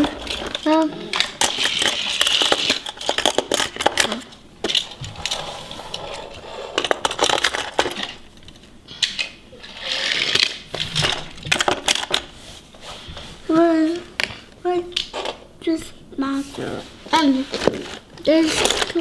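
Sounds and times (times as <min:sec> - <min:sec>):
toy cars clicking against plastic case: 0:00.0 - 0:05.0.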